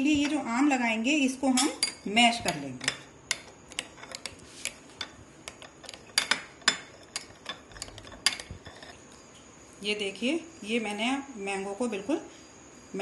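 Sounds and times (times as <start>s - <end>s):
metal spoon clinking glass bowl: 1.5s - 4.3s, 5.0s - 9.0s.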